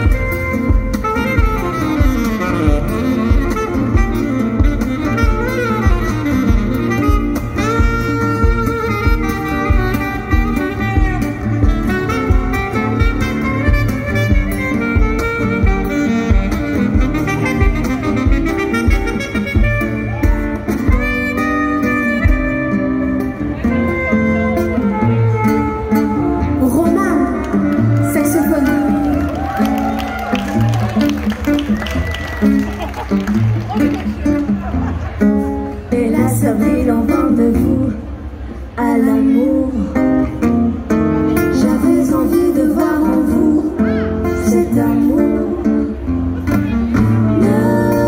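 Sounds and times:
horn melody: 0.0 - 32.8
guitar: 0.0 - 48.0.

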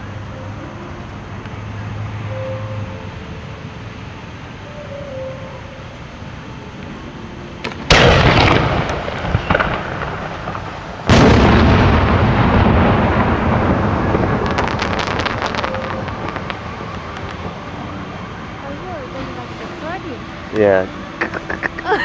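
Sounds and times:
rolling echo: 7.6 - 20.3
firework crackles: 7.6 - 20.9
firework shell booms: 7.7 - 17.6.

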